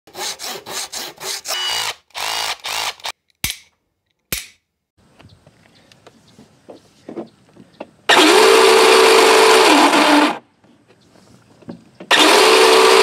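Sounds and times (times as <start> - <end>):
power drill revving: 1.2 - 3.1, 8.1 - 10.4, 12.1 - 13.0.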